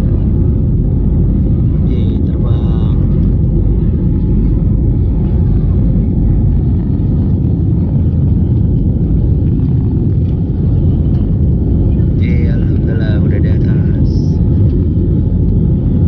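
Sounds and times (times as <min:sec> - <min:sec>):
jet engines rumbling in cabin: 0:00.0 - 0:16.0.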